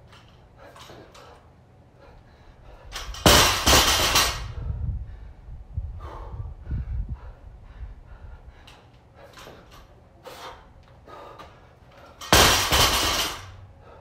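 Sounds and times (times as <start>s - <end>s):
barbell crashing onto mats: 3.2s - 4.5s, 12.2s - 13.6s.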